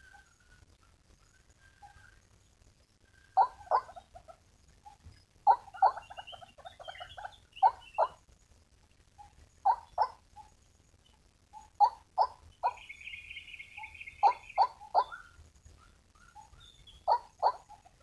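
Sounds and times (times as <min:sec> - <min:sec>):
soft chattering: 0:03.4 - 0:08.2, 0:09.2 - 0:10.5, 0:16.4 - 0:18.0
waterhen harsh calls: 0:05.5 - 0:08.2, 0:11.8 - 0:15.2.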